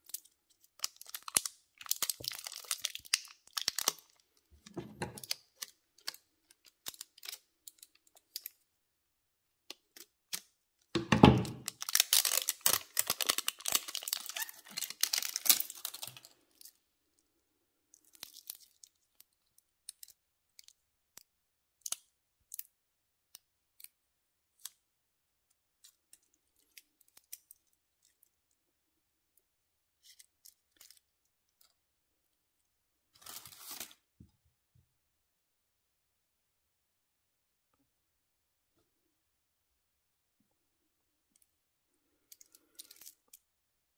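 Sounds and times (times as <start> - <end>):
plastic wrap crinkling and tearing: 0.0 - 8.6, 11.4 - 16.8, 17.9 - 20.8, 33.1 - 34.1, 42.4 - 43.5.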